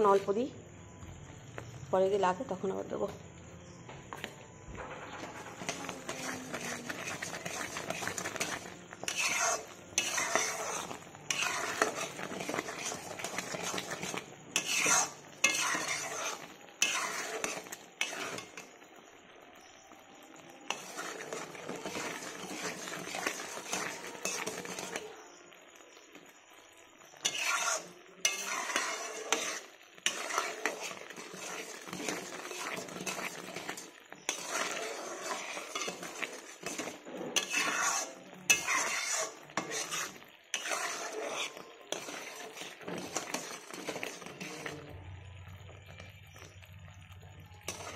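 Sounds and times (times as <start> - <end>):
syrup bubbling and sizzling: 0.0 - 47.9
metal spatula scraping a pot: 4.8 - 18.8, 20.7 - 26.2, 27.0 - 45.5, 47.6 - 47.9.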